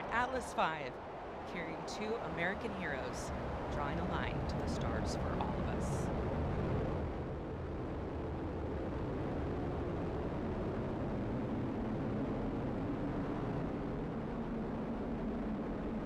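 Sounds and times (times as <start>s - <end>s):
rocket engines roaring: 0.0s - 16.0s.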